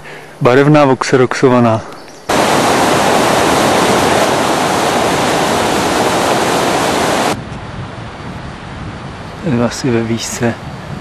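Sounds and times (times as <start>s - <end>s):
fast-flowing water rushing: 2.3s - 7.4s.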